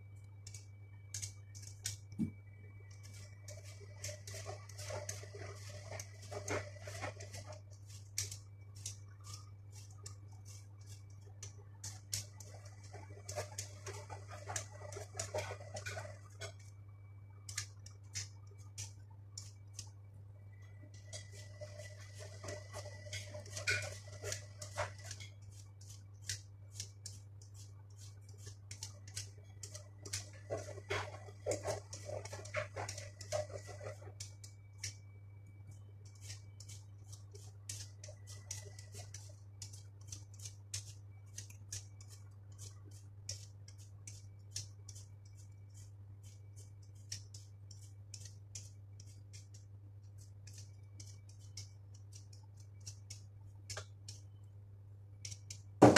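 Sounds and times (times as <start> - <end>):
vegetable peeler scraping potato: 11.8 - 16.6, 21.1 - 34.9, 36.0 - 49.6, 50.2 - 53.8.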